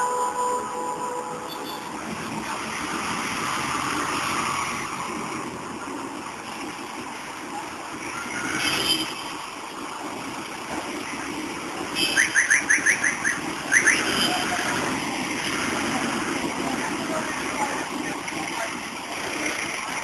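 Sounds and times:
traffic noise: 0:00.0 - 0:20.0.

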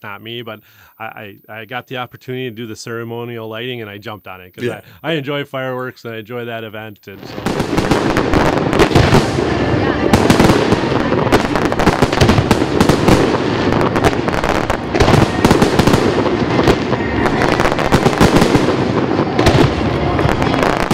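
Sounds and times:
fireworks bursting and crackling: 0:06.6 - 0:20.9.

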